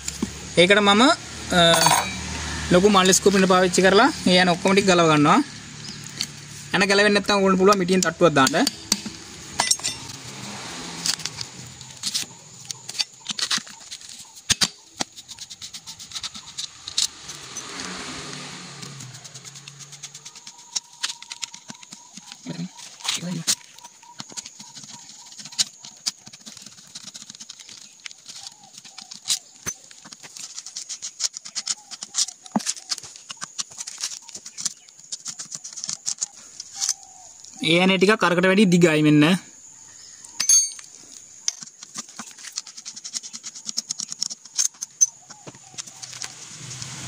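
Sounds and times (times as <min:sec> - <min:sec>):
bird calls: 0:03.4 - 0:18.1, 0:18.7 - 0:47.0
sharp metal knocks: 0:08.4 - 0:10.2, 0:40.4 - 0:40.9.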